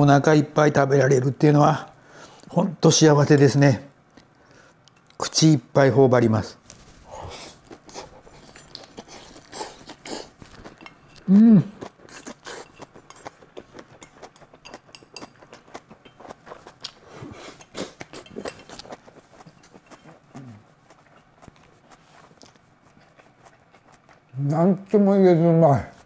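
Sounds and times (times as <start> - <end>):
chewing and mouth noises: 6.7 - 25.0
person humming: 11.2 - 11.8, 20.4 - 20.6.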